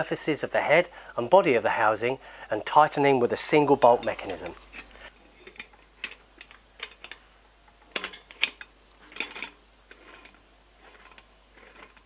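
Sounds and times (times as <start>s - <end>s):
metal clamp clicking: 5.4s - 7.2s, 7.9s - 10.4s.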